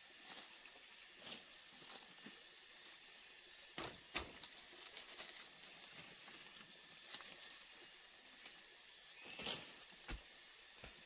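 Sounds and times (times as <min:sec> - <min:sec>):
faint forest hiss: 0:00.0 - 0:11.0.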